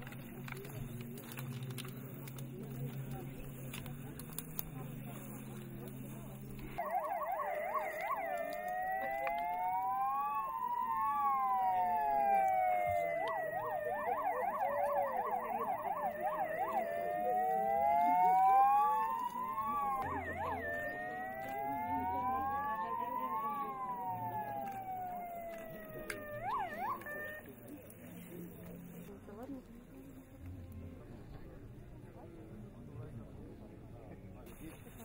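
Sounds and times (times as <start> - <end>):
sirens wailing: 6.6 - 29.0
sirens yelping: 6.7 - 28.8.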